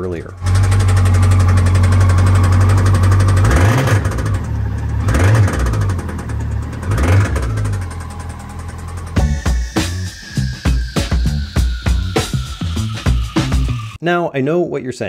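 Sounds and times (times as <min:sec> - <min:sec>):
motorcycle engine idling and revving: 0:00.0 - 0:13.9
engine knocking: 0:00.4 - 0:09.2.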